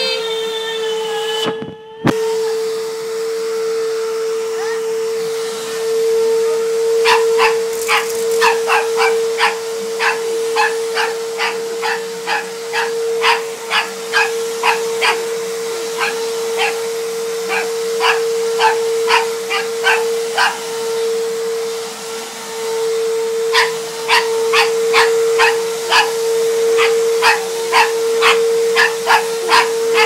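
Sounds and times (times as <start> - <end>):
vacuum cleaner humming: 0.0 - 30.0
dog barking: 7.0 - 15.3, 15.9 - 16.9, 17.5 - 20.6, 23.5 - 30.0.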